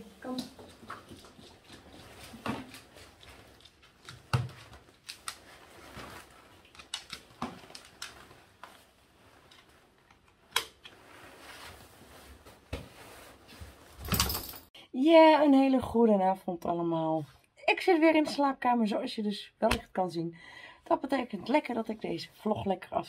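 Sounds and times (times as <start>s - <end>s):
harness clicks and rustling: 0.5s - 14.7s.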